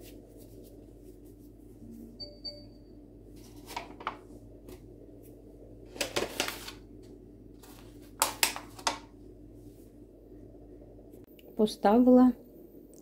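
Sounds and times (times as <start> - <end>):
paper rustles and taps: 7.6 - 9.1.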